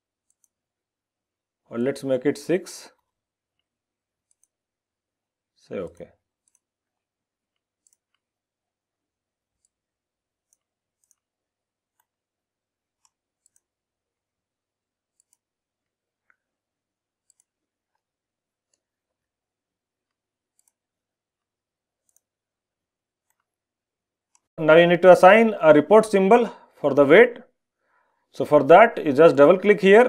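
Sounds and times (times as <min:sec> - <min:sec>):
faint computer mouse clicks: 0:03.6 - 0:04.6, 0:07.6 - 0:08.3, 0:10.5 - 0:11.2, 0:13.0 - 0:13.7, 0:15.1 - 0:15.4, 0:17.2 - 0:17.5, 0:20.5 - 0:20.8, 0:22.0 - 0:22.3.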